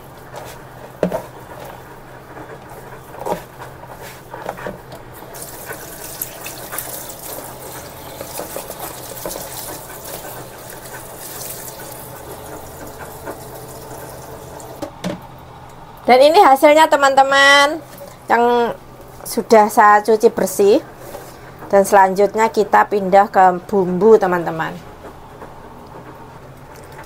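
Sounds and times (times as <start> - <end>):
tap water running into sink: 5.2 - 14.9.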